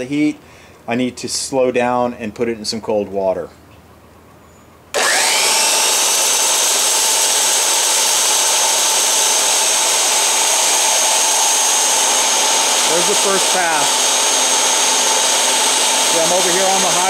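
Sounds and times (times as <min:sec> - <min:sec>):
belt sander whine: 0:04.9 - 0:17.0.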